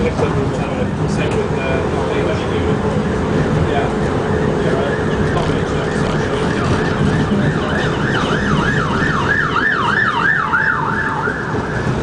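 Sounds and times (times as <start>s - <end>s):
tram rumbling: 0.0s - 12.0s
siren yelping: 4.5s - 12.0s.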